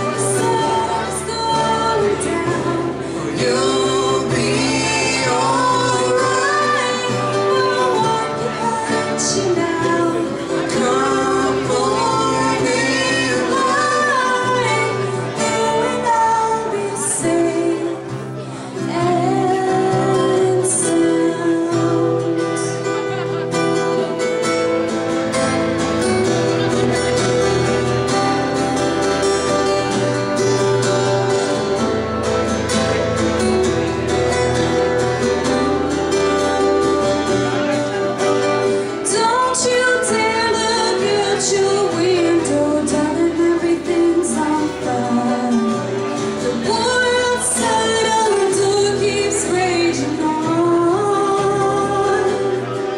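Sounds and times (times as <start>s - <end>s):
woman singing: 0.0s - 22.9s, 38.8s - 52.9s
acoustic guitars playing: 0.0s - 52.9s.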